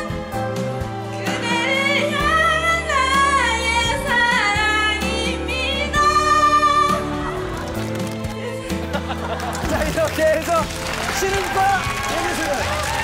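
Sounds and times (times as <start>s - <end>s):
instrumental backing music: 0.0s - 13.0s
woman singing into a microphone: 1.0s - 7.6s.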